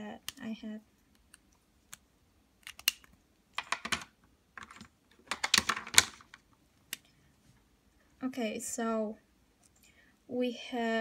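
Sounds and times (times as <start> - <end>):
handling clicks and rustles: 2.6 - 7.0.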